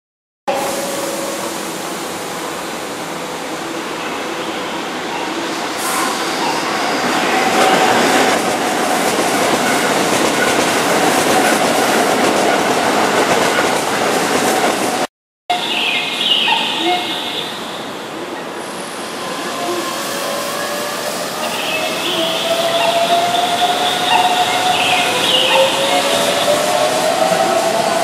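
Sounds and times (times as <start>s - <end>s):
train wheels rattling over rails: 6.0s - 15.1s.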